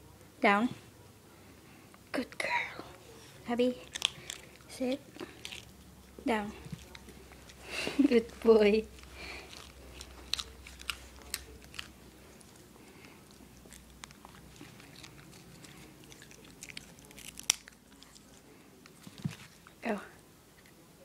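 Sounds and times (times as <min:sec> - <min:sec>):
dog chewing a treat: 0:03.6 - 0:19.8.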